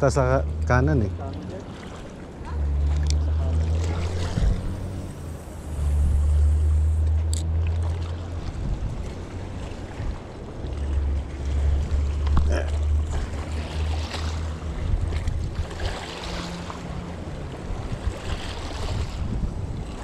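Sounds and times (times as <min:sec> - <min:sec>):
wind buffeting microphone: 0:00.0 - 0:20.0
fishing reel whirring: 0:03.8 - 0:07.6.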